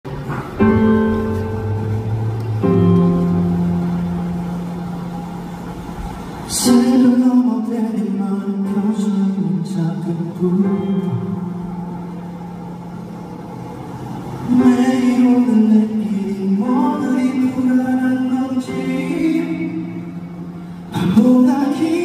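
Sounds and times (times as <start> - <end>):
instrumental accompaniment: 0.2 - 6.8
man singing: 6.5 - 11.3, 14.5 - 20.2, 20.9 - 22.0.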